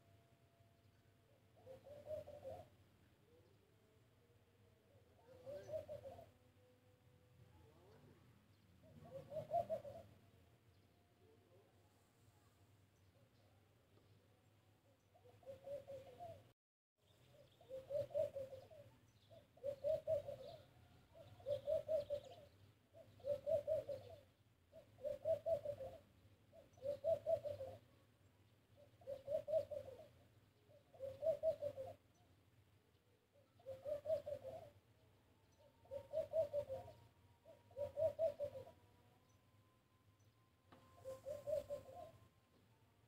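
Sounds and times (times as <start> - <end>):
dove cooing: 1.3 - 10.4, 15.1 - 16.5, 17.3 - 28.0, 28.7 - 32.2, 33.1 - 39.4, 40.7 - 42.8.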